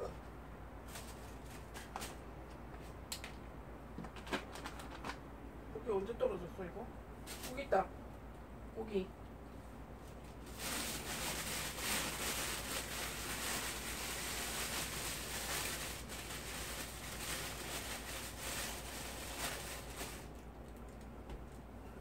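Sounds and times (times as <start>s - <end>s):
crackly rustling with clicks: 0.2s - 5.2s, 9.2s - 21.7s.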